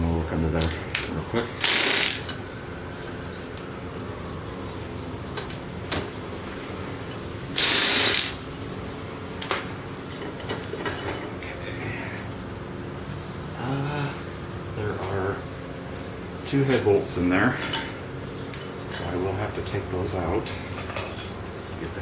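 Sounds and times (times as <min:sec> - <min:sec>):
steady low hum: 0:00.0 - 0:22.0
cordless electric ratchet running: 0:01.6 - 0:02.3, 0:07.5 - 0:08.4.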